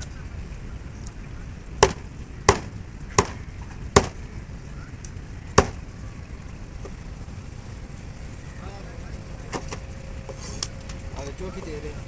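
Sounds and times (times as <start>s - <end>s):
cleaver chopping on wooden block: 1.8s - 3.4s.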